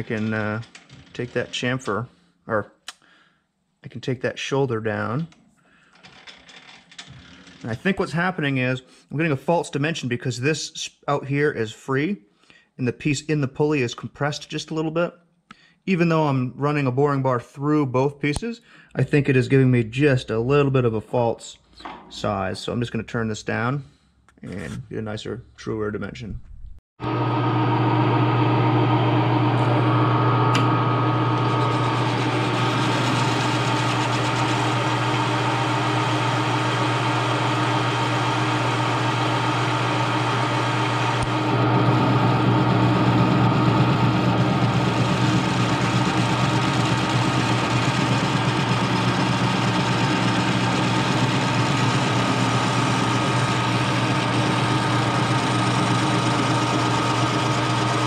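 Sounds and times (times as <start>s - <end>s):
lathe motor and gear hum: 27.0s - 58.0s.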